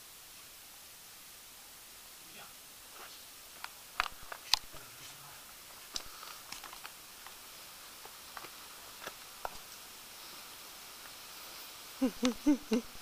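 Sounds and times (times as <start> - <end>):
faint steady hiss: 0.0 - 13.0.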